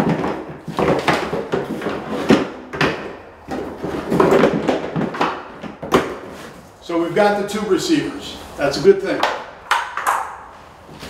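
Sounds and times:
plastic parts knocking and scraping: 0.0 - 6.6.

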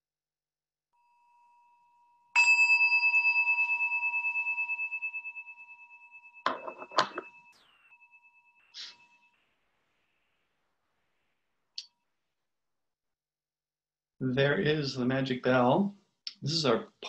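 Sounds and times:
bell ringing: 1.1 - 9.6.

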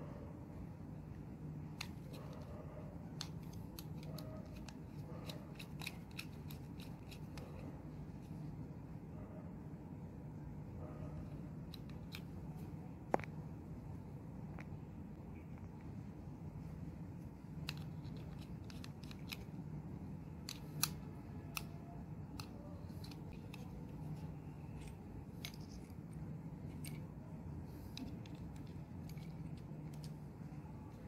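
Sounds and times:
steady low hum: 0.0 - 31.0
plastic and metal parts clicking: 1.7 - 7.7, 11.6 - 12.6, 17.5 - 31.0.

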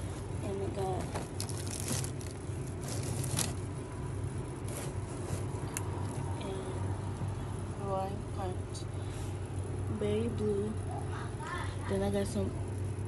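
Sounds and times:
steady low hum: 0.0 - 13.0
plastic bags crinkling: 0.8 - 3.7.

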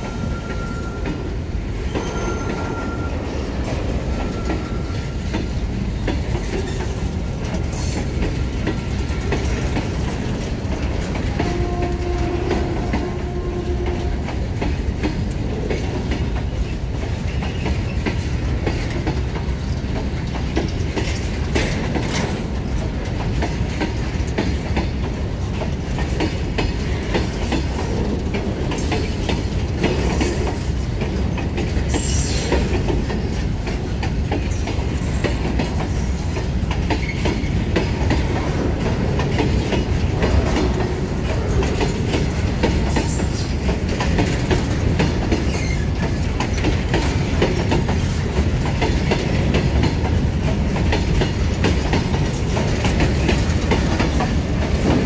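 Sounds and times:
freight train rumbling past: 0.0 - 55.0
wheels clacking over rail joints: 0.0 - 55.0.

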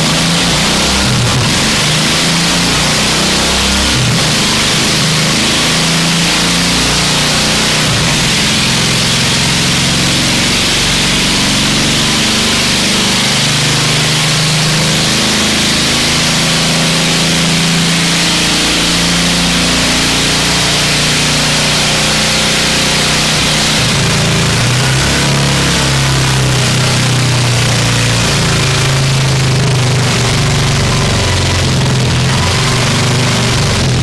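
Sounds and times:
lawn mower engine running: 19.9 - 34.0.

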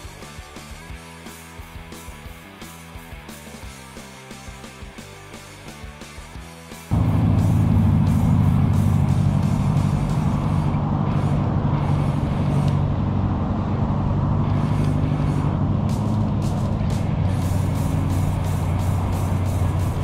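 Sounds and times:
loud road traffic rumble: 6.9 - 20.0.

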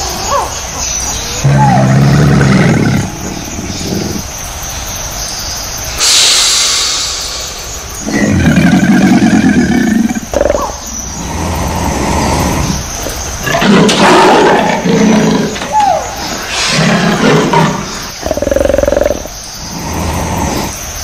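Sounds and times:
wild cat calling loudly: 0.0 - 4.3, 8.0 - 20.8
crocodile low pulsing growl: 1.4 - 4.2, 8.0 - 14.0, 16.6 - 20.8
crocodile hissing: 1.4 - 4.4, 6.0 - 21.0.

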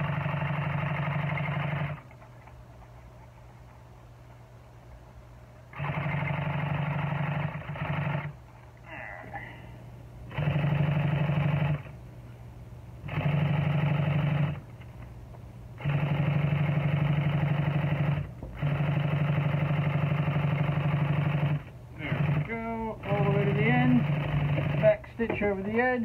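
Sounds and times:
sewing machine stitching: 0.0 - 2.2, 5.7 - 8.4, 10.3 - 11.9, 13.0 - 14.6, 15.8 - 25.0
low motor hum: 0.0 - 26.0.

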